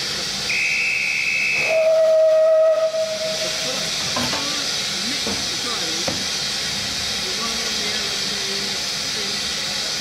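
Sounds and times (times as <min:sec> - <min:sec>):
shrill high whistle: 0:00.5 - 0:03.4
steam locomotive whistle: 0:00.5 - 0:03.9
hiss of escaping steam: 0:01.1 - 0:10.0.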